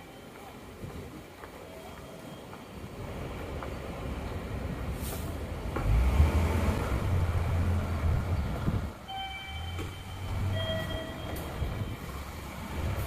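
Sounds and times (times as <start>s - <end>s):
heavy low rumble: 6.7s - 9.0s
electronic chime tones: 9.1s - 12.1s.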